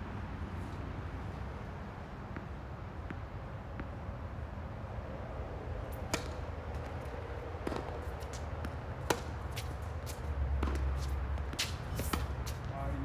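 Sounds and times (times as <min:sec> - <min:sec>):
tennis ball struck by rackets: 0:05.9 - 0:12.7.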